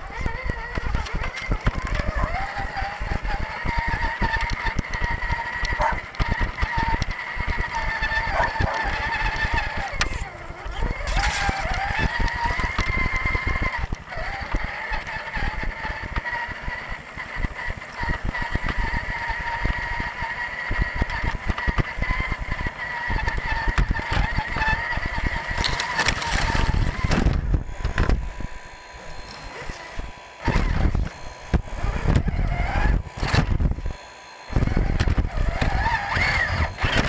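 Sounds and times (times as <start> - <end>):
electric motor whining: 0.0 - 37.0
tyres clattering on wood chips: 8.0 - 13.2.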